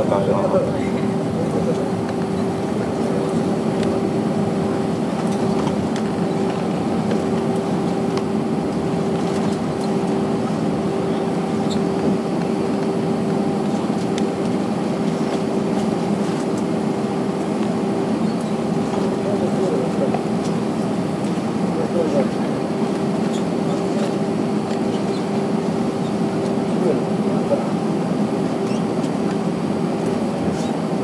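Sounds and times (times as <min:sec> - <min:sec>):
airplane engines rumbling in cabin: 0:00.0 - 0:31.0.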